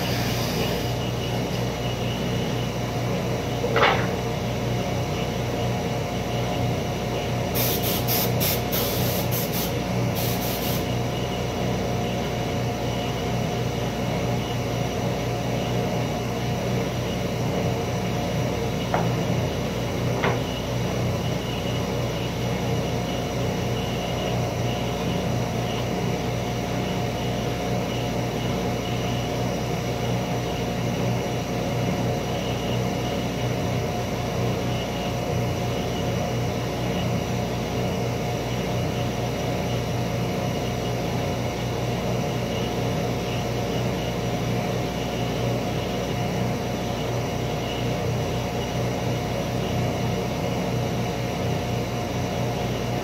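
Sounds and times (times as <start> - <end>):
woodshop machinery humming: 0.0 - 5.4.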